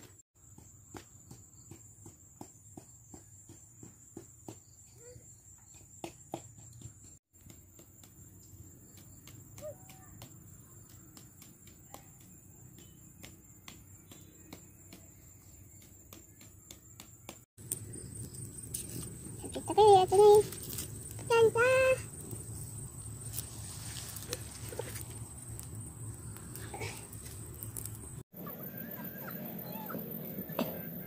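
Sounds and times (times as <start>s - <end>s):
insects trilling: 17.6s - 30.7s.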